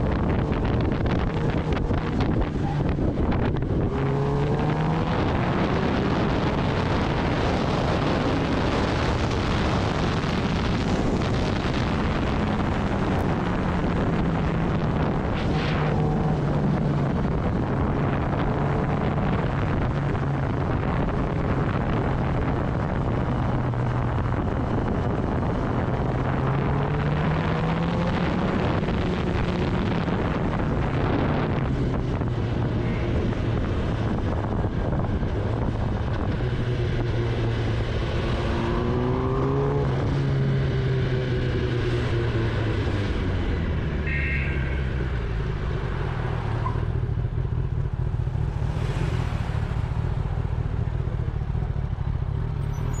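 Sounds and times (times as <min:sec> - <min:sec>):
wind rushing over microphone: 0:00.0 - 0:52.9
motorcycle engine revving: 0:00.0 - 0:53.0.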